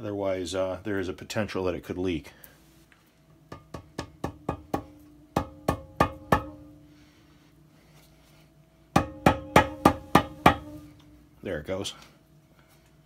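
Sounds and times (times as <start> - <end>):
rubber mallet tapping metal: 3.5 - 6.8, 9.0 - 10.8.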